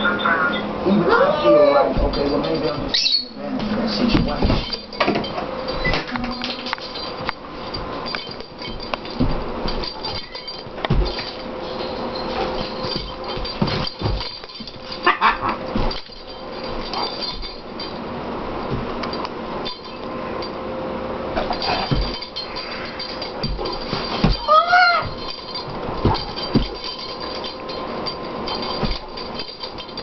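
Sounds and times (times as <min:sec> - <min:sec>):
paw steps: 0:00.0 - 0:18.0, 0:21.4 - 0:30.0
dull thumps: 0:04.1 - 0:17.8, 0:21.4 - 0:22.4, 0:23.0 - 0:30.0.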